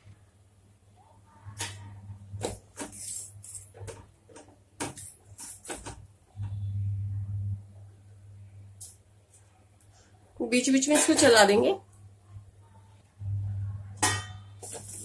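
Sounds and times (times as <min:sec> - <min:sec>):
steady low hum: 0:05.1 - 0:10.4, 0:11.9 - 0:15.0.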